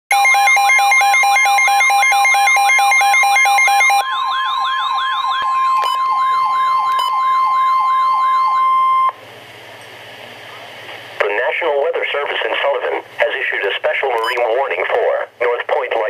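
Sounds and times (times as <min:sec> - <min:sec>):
fast two-pitch beeping: 0:00.1 - 0:09.2
steady high alert tone: 0:00.1 - 0:09.2
warbling siren: 0:00.1 - 0:09.2
faint radio hiss: 0:11.2 - 0:16.0.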